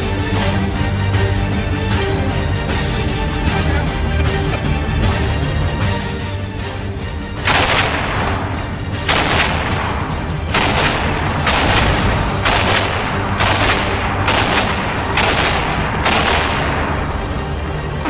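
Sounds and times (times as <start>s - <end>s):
background music: 0.0s - 18.0s
shotgun blasts: 7.5s - 17.2s.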